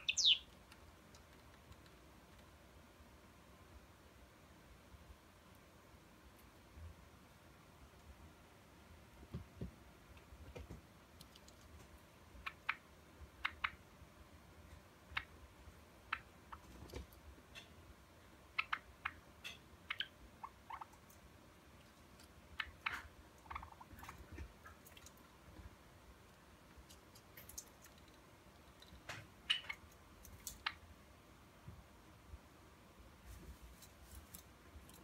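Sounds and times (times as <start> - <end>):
sparrow chirping and clicking: 0.0 - 1.9, 11.2 - 13.8, 15.0 - 15.4, 16.0 - 17.8, 18.5 - 21.2, 22.2 - 25.2, 28.7 - 30.8.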